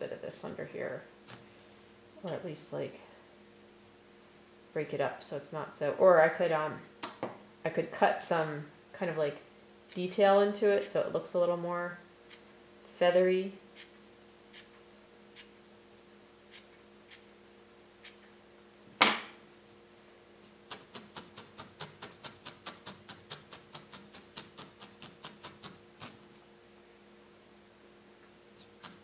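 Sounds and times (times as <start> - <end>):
felting needle poking wool: 20.7 - 26.3
scissor snips: 20.7 - 26.3, 28.6 - 29.0.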